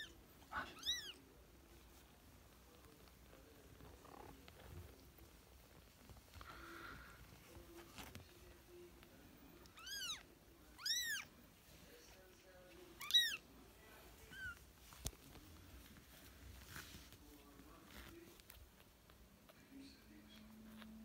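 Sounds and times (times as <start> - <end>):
kitten meowing: 0.0 - 1.2, 9.7 - 10.2, 10.8 - 11.3, 13.0 - 13.4.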